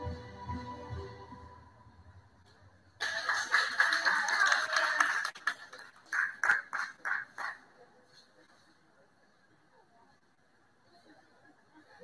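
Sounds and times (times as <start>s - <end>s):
audience applauding: 3.0s - 7.7s.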